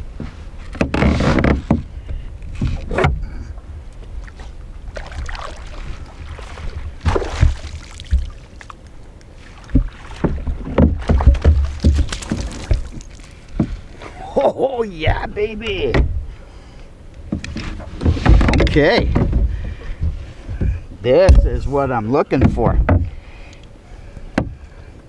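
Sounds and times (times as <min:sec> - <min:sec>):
knocks in a canoe: 0:00.2 - 0:03.2, 0:06.4 - 0:08.4, 0:09.6 - 0:13.8, 0:17.3 - 0:21.6, 0:22.4 - 0:23.2, 0:24.3 - 0:24.6
wind buffeting microphone: 0:01.6 - 0:14.0.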